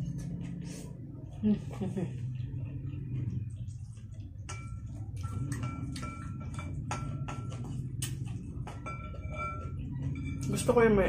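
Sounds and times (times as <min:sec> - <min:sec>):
low hum: 0:00.0 - 0:11.0
utensils clinking against ceramic bowl: 0:04.4 - 0:11.0.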